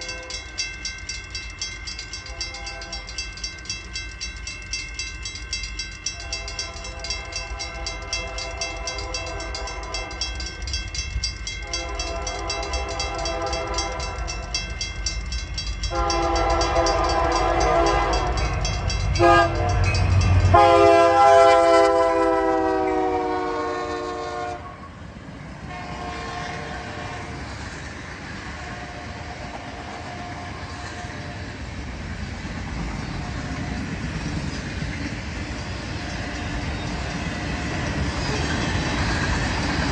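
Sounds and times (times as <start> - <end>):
train air horn blasts: 0.0 - 0.4, 2.3 - 3.2, 6.2 - 10.3, 11.6 - 14.5, 15.9 - 18.5, 19.2 - 25.0, 25.7 - 27.5, 28.5 - 31.5
train wheels clacking over rail joints: 0.0 - 23.0, 26.3 - 39.9.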